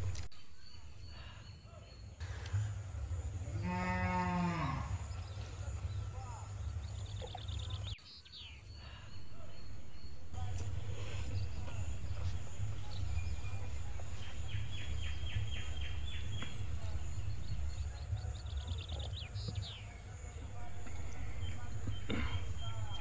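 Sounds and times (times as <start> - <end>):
birdsong: 0.0 - 23.0
bird chirping rapidly: 6.8 - 19.8, 20.5 - 23.0
steady low rumble: 9.0 - 19.5, 20.2 - 23.0.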